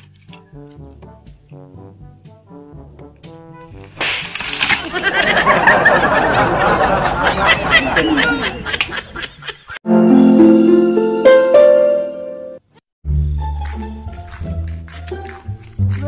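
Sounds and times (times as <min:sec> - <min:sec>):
boys laughing: 0:04.7 - 0:09.8
bright music jingle: 0:09.8 - 0:12.6.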